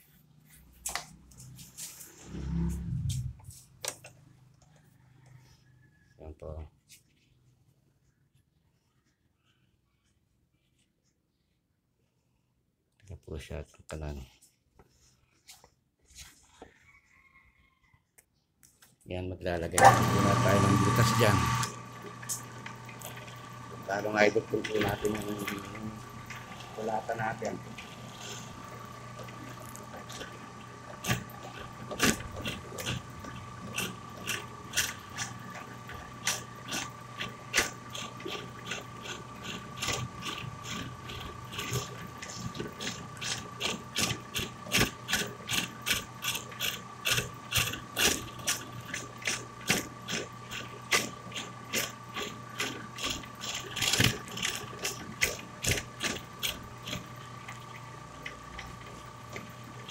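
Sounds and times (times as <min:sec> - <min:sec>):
hand tool chipping wood: 0:31.0 - 0:35.4, 0:36.2 - 0:57.1.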